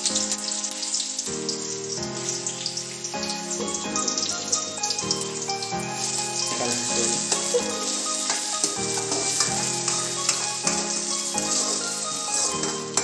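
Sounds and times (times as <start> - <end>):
background music held chords: 0.0 - 13.0
onions sizzling in hot oil: 0.0 - 13.0.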